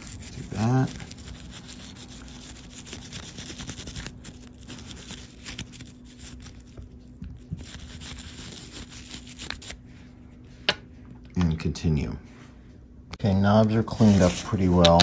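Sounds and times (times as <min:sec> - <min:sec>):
toothbrush scrubbing: 0:00.0 - 0:09.8.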